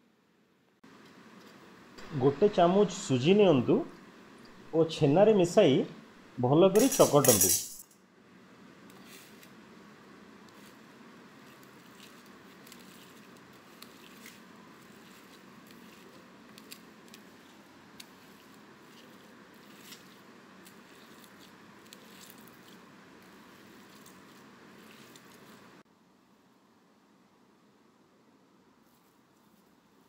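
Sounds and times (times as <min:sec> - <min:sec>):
hand kneading cheese on plate: 0:10.4 - 0:25.8.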